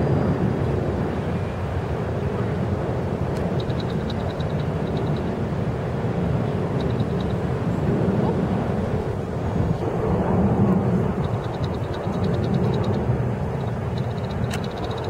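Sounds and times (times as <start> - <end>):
low outdoor rumble: 0.0 - 15.0
faint rapid high ticking: 3.4 - 5.4, 6.7 - 7.4, 10.9 - 15.0.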